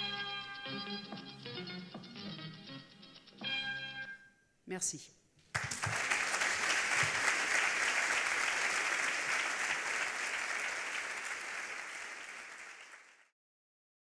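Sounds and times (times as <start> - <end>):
audience applauding: 5.5 - 13.3.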